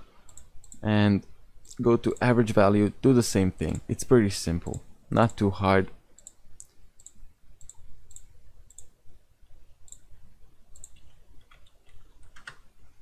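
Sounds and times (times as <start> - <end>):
computer mouse buttons clicking: 0.2 - 0.8, 6.2 - 8.9, 9.8 - 10.1, 10.7 - 12.7.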